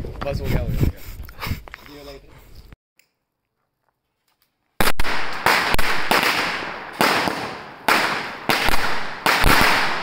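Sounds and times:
fireworks banging: 4.8s - 10.0s.

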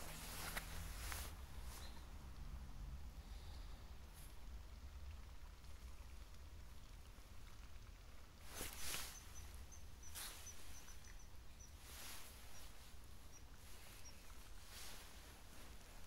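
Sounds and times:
soft swishes: 8.4s - 11.0s
small bird peeping: 8.5s - 14.9s.

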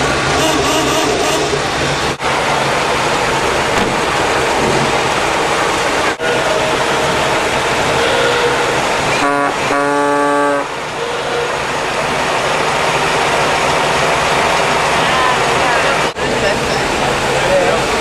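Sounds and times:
car engines running: 0.0s - 18.0s
old car horn tooting: 0.4s - 1.6s, 7.9s - 11.6s.

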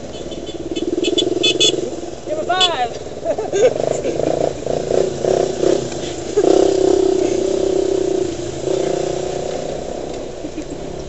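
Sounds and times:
vehicle engine under load: 0.0s - 11.0s.

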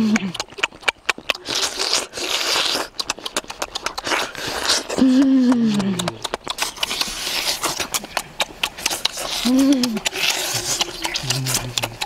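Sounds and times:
person humming mmm: 0.0s - 0.6s, 4.0s - 6.4s, 9.2s - 12.0s
short slurps: 0.0s - 12.0s
wet lip smacks and chewing: 0.0s - 12.0s.

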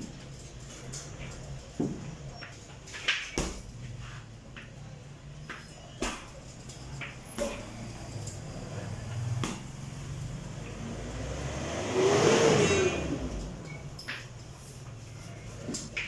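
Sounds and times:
motor vehicle passing: 7.4s - 15.9s.

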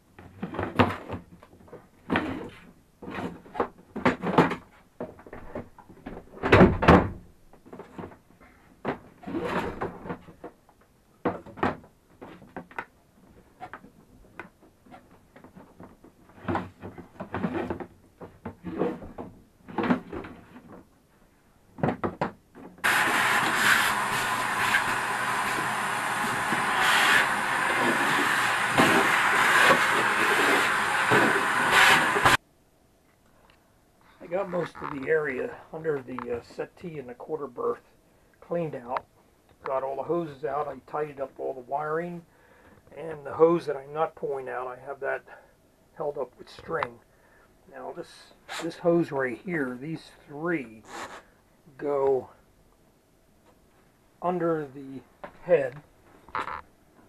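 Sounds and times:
shop vacuum running: 22.8s - 32.4s.

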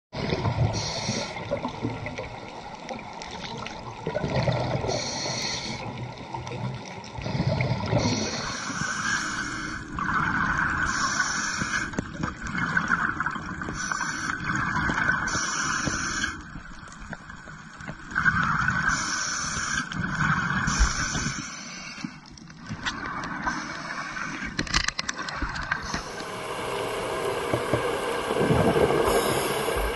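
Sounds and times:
gurgling exhaled bubbles: 0.2s - 8.6s, 25.3s - 29.9s
regulator hissing inhale: 0.7s - 1.5s, 4.9s - 5.9s, 7.2s - 10.0s, 10.9s - 12.0s, 13.7s - 14.5s, 15.3s - 16.5s, 18.9s - 22.3s, 23.4s - 24.6s, 25.8s - 29.9s.

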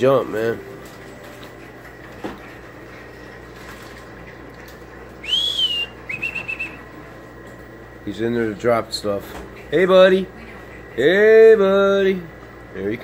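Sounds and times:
person whistling: 5.2s - 6.8s.

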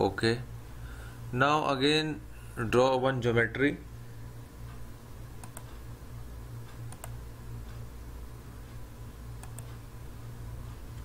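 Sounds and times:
low electrical hum: 0.0s - 11.0s
computer mouse clicks: 5.4s - 5.8s, 6.7s - 7.8s, 9.4s - 9.8s.

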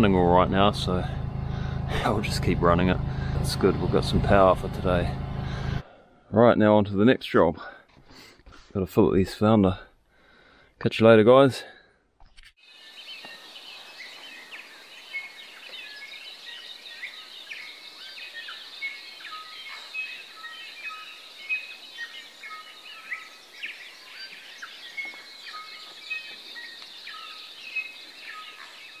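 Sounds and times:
birds chirping and whistling: 12.9s - 29.0s.

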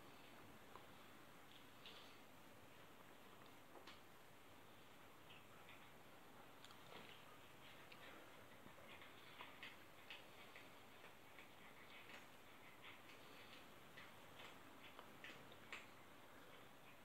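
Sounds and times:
faint light ticks: 3.3s - 4.1s, 4.8s - 17.0s.

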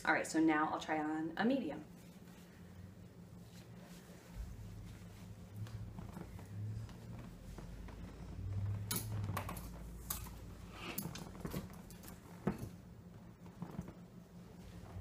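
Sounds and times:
fabric rustling: 1.9s - 15.0s
clothes hangers clicking: 8.8s - 11.3s.

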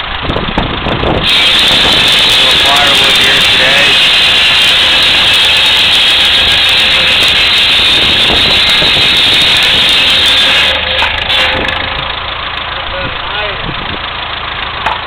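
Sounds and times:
tractor engine hum: 0.0s - 15.0s
buzz saw cutting log: 1.2s - 12.9s.

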